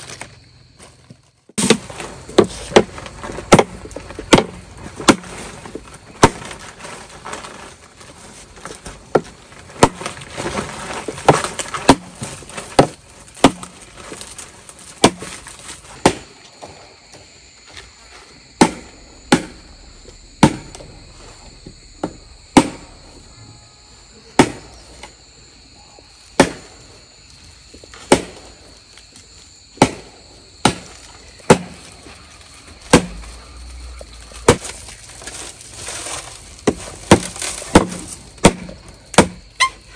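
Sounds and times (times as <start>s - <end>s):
hand tool striking bamboo: 1.6s - 7.6s, 9.1s - 14.1s, 14.9s - 16.3s, 18.6s - 20.9s, 21.6s - 23.0s, 24.4s - 24.7s, 28.0s - 28.4s, 29.8s - 31.9s, 32.9s - 33.3s, 34.4s - 39.8s
high insect buzz: 15.4s - 39.9s.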